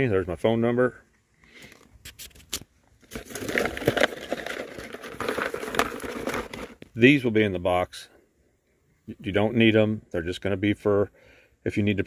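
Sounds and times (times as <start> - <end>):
plastic packaging crinkling: 2.2 - 6.8.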